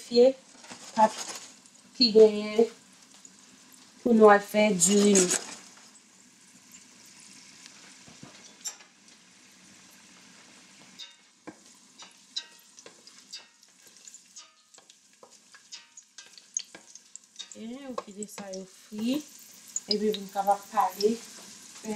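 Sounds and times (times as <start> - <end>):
garlic sizzling in oil: 0.0 - 21.9
wooden spoon stirring in a pot: 10.1 - 21.9.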